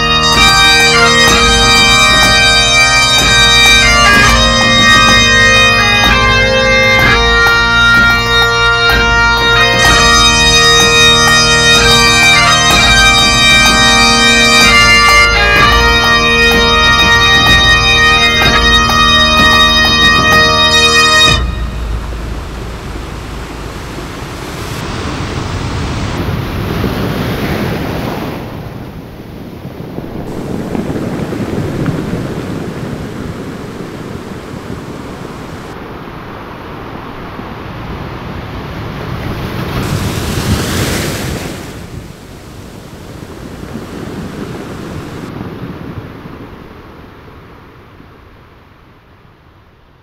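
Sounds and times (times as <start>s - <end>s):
ocean waves washing in: 18.9s - 50.0s.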